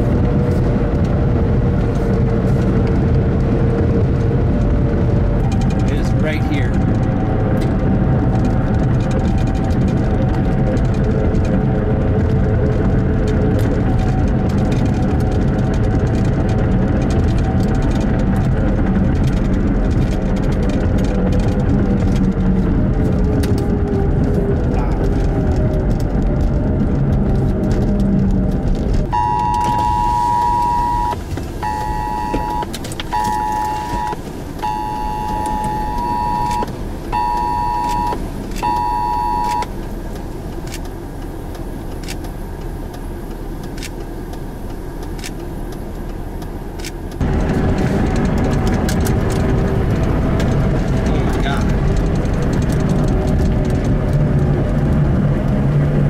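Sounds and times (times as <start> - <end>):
car interior road and engine noise: 0.0 - 56.0
two-pitch electronic alert tone: 29.2 - 39.7.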